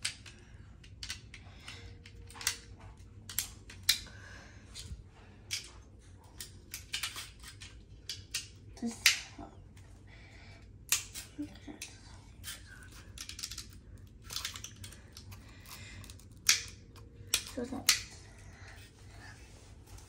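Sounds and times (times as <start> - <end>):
plastic snap connectors clicking: 0.0 - 2.7, 3.3 - 4.1, 6.4 - 9.3, 10.9 - 18.1.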